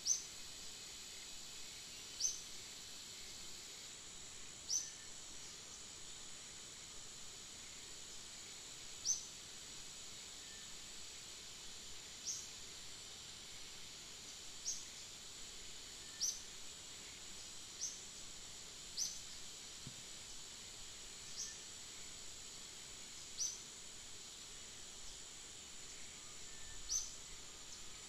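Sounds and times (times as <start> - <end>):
insect drone: 0.0 - 28.0.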